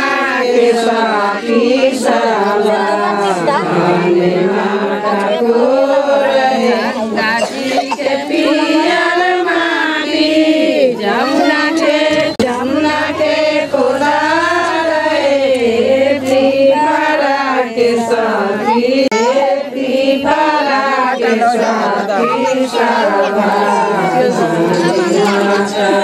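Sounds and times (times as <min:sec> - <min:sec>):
devotional singing: 0:00.0 - 0:26.0.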